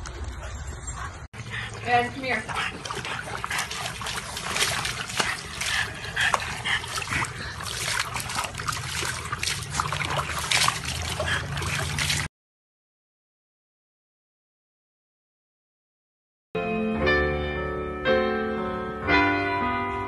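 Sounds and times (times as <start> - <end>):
water sloshing and trickling: 0.0 - 12.3
dog splashing in water: 1.6 - 12.3.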